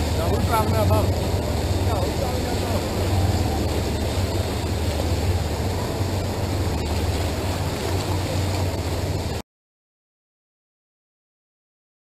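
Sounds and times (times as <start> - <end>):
boat engine rumble: 0.0 - 9.4
churning water: 0.0 - 9.4
wind on microphone: 0.0 - 9.4.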